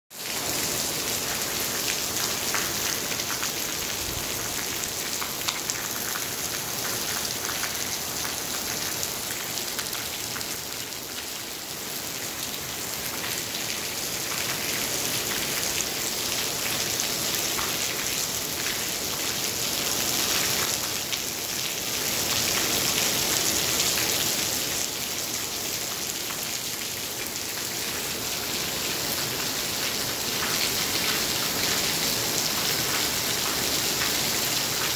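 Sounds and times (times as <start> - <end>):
heavy rain on a canopy: 0.1 - 34.9.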